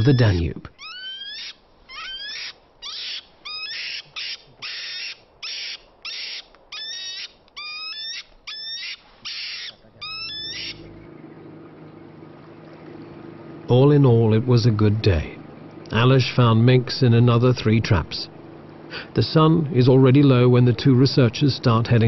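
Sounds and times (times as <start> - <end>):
mink squealing: 0.0 - 11.0
faint low hum: 0.0 - 22.0
mink hissing: 0.8 - 10.9.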